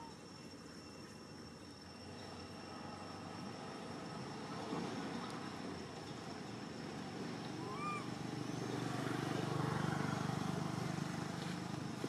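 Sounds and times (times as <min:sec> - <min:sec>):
motor vehicle passing: 0:07.1 - 0:12.0.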